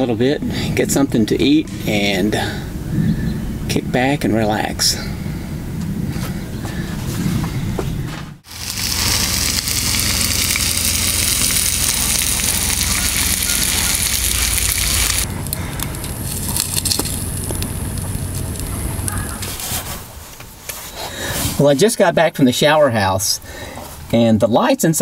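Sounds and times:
wood fire crackling and popping: 0:08.4 - 0:19.9
food sizzling in frying pan: 0:08.5 - 0:15.3.

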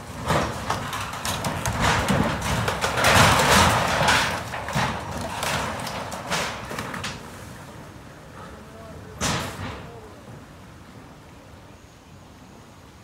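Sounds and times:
wooden house cracking and snapping: 0:00.0 - 0:07.2.

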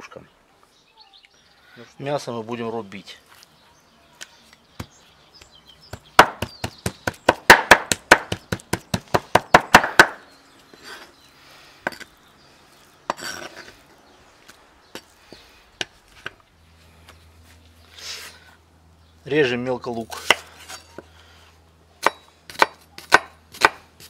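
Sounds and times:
cleaver chopping on wooden board: 0:05.9 - 0:10.2, 0:22.0 - 0:23.9.

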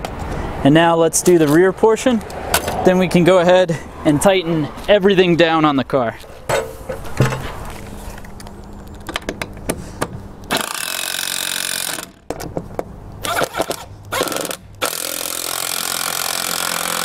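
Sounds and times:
impact driver running: 0:10.5 - 0:12.2, 0:13.2 - 0:17.0.

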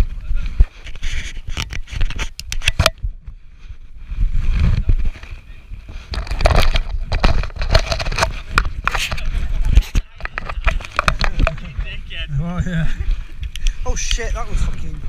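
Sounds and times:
rubbing and knocking on camera: 0:00.6 - 0:03.1, 0:04.4 - 0:12.0.

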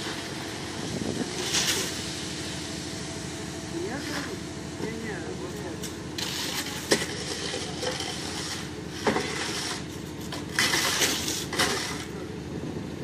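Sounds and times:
concrete mixer truck running: 0:00.0 - 0:13.0
scraping: 0:06.2 - 0:12.2.

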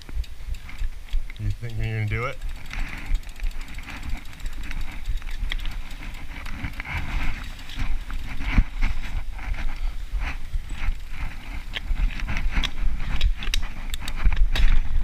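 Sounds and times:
bike knocks and rattles: 0:00.0 - 0:15.0
bike tyres rolling on dirt: 0:00.0 - 0:15.0
wind rumble on microphone: 0:00.0 - 0:15.0.

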